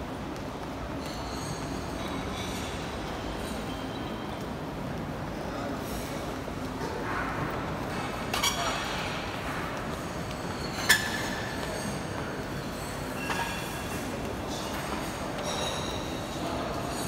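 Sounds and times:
people walking: 0.0s - 8.3s, 9.2s - 13.2s
busy lobby background noise: 0.0s - 17.0s.

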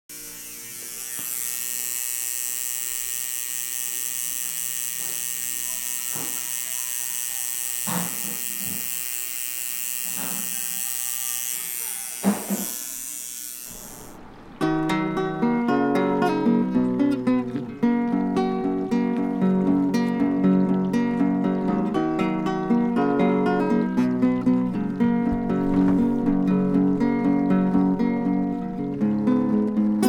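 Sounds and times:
tattoo machine buzzing: 0.1s - 14.2s.

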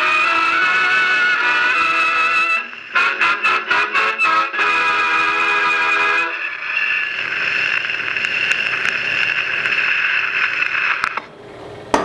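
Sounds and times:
gramophone surface hiss: 0.0s - 11.3s
faint record crackles: 6.3s - 11.4s.

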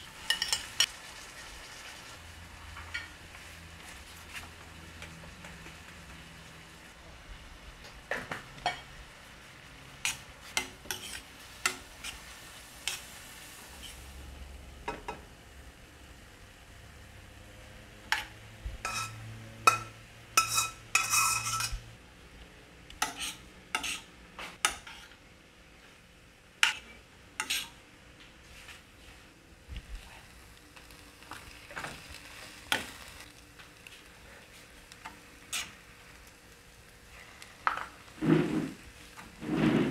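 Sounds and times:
metal spoon scraping frying pan: 0.1s - 0.9s, 10.0s - 13.1s, 18.1s - 21.8s, 23.0s - 25.2s, 26.6s - 27.8s, 35.5s - 35.8s, 37.7s - 39.9s
food scraped between pans clanking: 20.4s - 21.8s, 38.2s - 39.9s.

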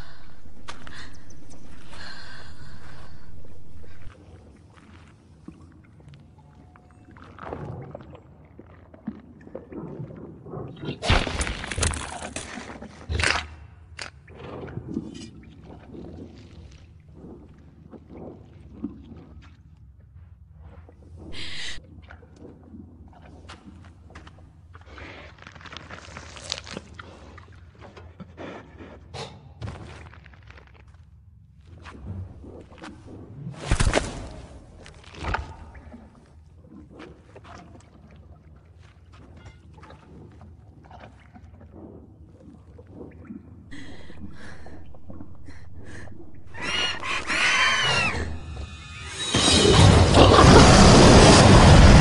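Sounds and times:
low rumble: 0.0s - 4.2s, 43.7s - 52.0s
creature whining cries: 46.5s - 48.6s
creature squeaks: 46.5s - 49.6s.

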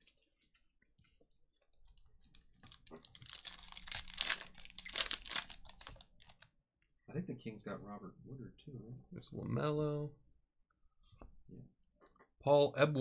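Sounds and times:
foil wrapper crinkling: 2.6s - 6.5s.

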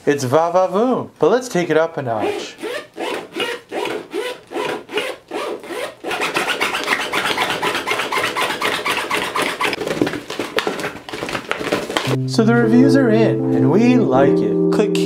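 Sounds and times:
zipper rasping back and forth: 2.2s - 9.8s.

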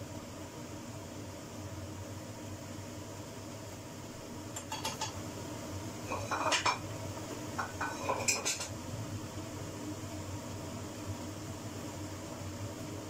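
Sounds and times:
steady hum: 0.0s - 13.0s
metal utensil scraping frying pan: 6.1s - 6.8s, 7.6s - 8.7s.

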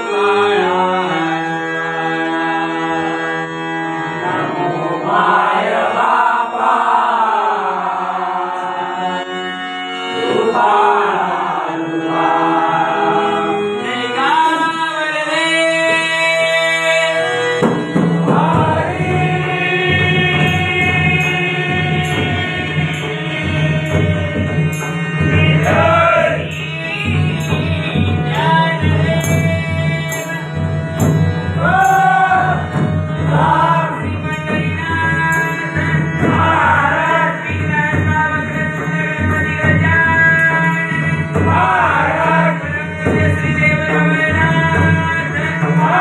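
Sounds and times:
reed organ drone: 0.0s - 15.4s, 17.1s - 46.0s
group devotional singing: 4.0s - 46.0s
hand drums: 17.6s - 46.0s.

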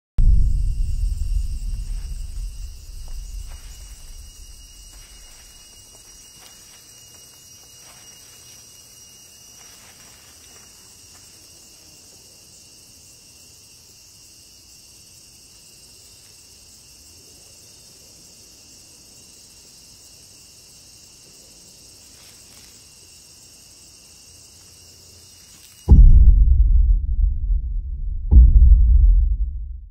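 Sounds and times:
loud deep boom: 0.2s - 5.0s, 25.9s - 29.9s
low rumble: 0.2s - 5.8s, 25.9s - 29.9s
crickets chirring: 0.2s - 25.9s
barefoot footsteps on sand: 0.7s - 11.5s.

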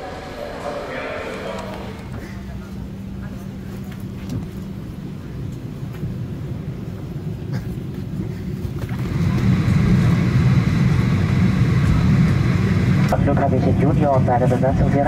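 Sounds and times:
airplane engine hum: 0.0s - 15.0s.

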